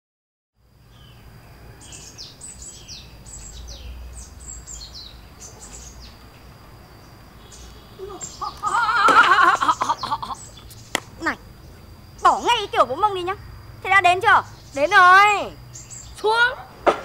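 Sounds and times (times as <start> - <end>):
street ambience rumble: 0.6 - 17.0
birds chirping: 0.8 - 16.8.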